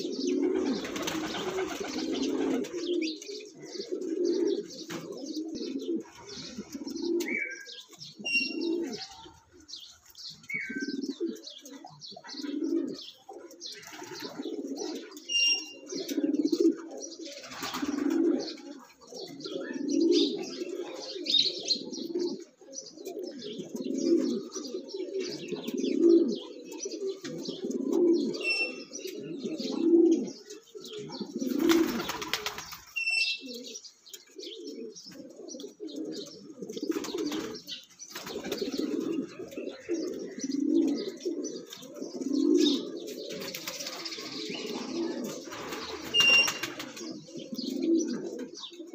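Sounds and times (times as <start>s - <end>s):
pigeons cooing: 0.0s - 48.9s
small birds chirping: 0.0s - 48.9s
wings flapping: 0.6s - 2.8s, 17.4s - 18.1s, 31.5s - 33.0s, 36.9s - 38.9s, 43.4s - 44.1s, 45.5s - 47.1s.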